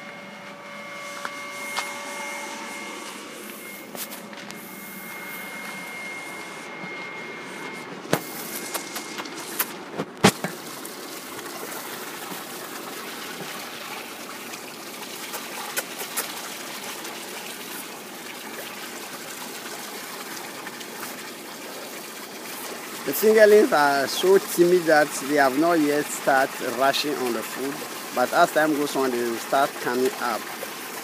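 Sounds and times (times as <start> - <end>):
water trickling into a tank: 10.3 - 31.0.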